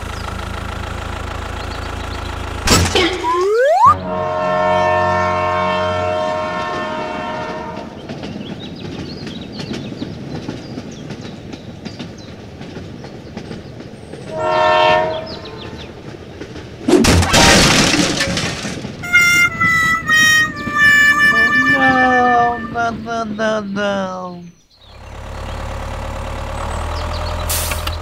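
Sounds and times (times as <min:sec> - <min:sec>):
toy train horn chord: 0:04.0 - 0:07.9, 0:14.3 - 0:15.4, 0:19.0 - 0:22.8.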